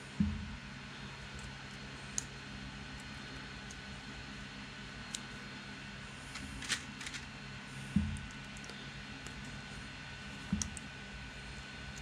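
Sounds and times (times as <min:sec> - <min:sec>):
steady low hum: 0:00.0 - 0:12.0
light clicks and rustles of wires: 0:06.2 - 0:11.0.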